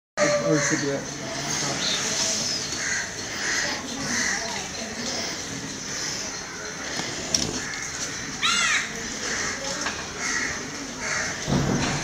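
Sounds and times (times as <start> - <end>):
crow cawing: 0.2 - 1.1, 2.8 - 4.5, 7.6 - 11.5.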